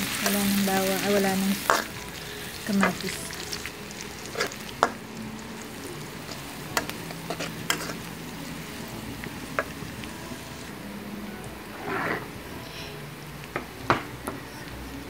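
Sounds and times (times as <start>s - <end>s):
garlic and onion sizzling in oil: 0.0s - 12.4s
metal spatula scraping a wok: 4.2s - 4.6s, 6.3s - 8.2s, 11.7s - 12.3s.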